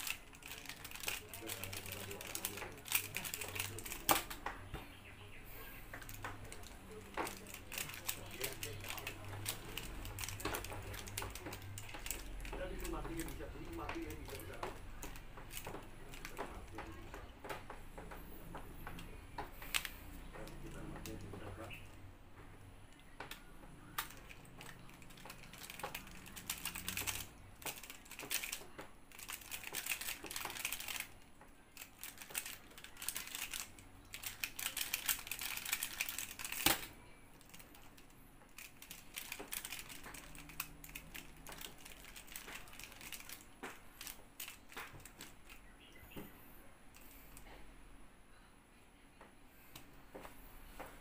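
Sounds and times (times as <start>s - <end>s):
puzzle plastic clacks: 5.6s - 22.0s, 23.0s - 46.2s.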